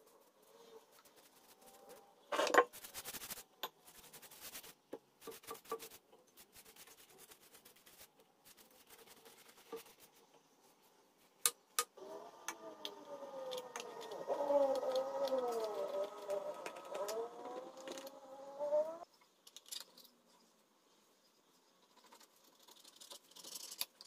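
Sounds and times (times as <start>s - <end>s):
brush dabbing and tapping: 2.6s - 11.9s.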